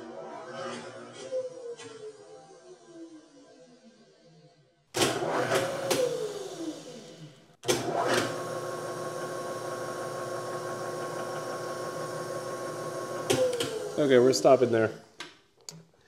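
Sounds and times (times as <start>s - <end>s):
mill spindle motor humming: 5.2s - 15.0s.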